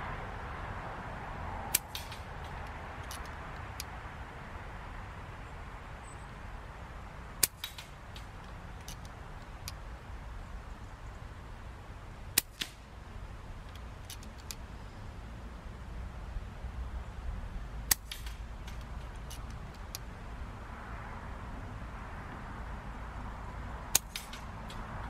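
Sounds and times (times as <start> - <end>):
air rifle shot crack: 1.7 - 2.5, 7.4 - 8.3, 12.4 - 12.9, 17.9 - 18.5, 24.0 - 24.6
faint clicks: 7.4 - 9.8.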